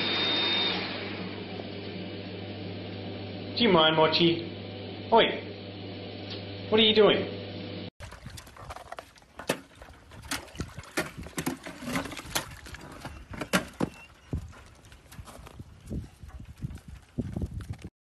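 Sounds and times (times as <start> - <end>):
ice cracking against metal trough: 8.6 - 12.8.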